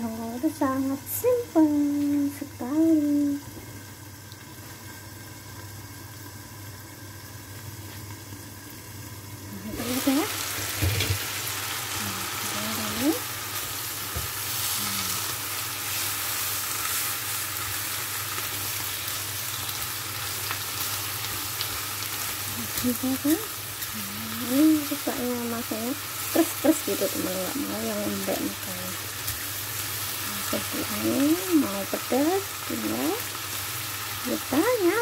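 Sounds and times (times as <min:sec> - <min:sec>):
vegetables sizzling in a wok: 0:00.0 - 0:35.0.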